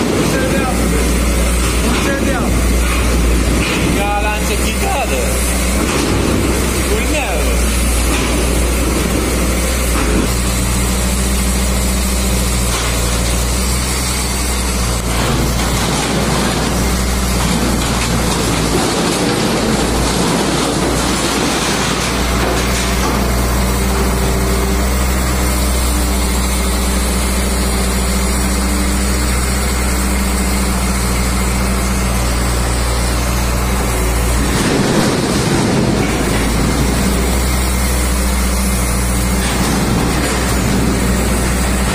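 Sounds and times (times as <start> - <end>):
sheet metal clattering and scraping: 0.0 - 10.4, 14.6 - 25.4, 33.2 - 41.9
diesel truck engine running: 0.0 - 41.9.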